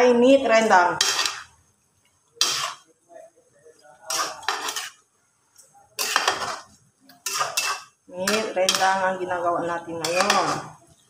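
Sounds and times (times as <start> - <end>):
spatula scraping metal pan: 0.9 - 1.6, 2.4 - 2.9, 4.0 - 5.0, 6.0 - 9.2, 9.9 - 10.8.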